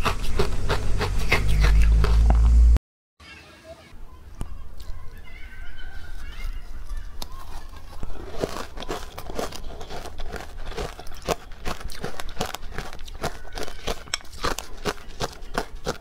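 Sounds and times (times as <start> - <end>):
crunching and chewing ice: 6.8 - 16.0.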